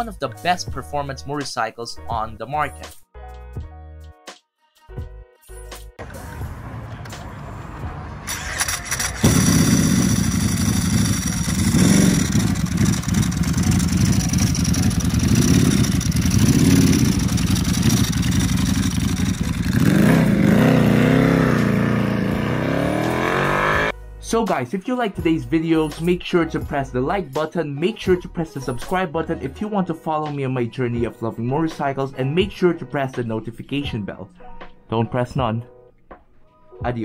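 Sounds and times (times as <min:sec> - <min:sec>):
motorcycle engine starting and revving: 0:07.8 - 0:23.9.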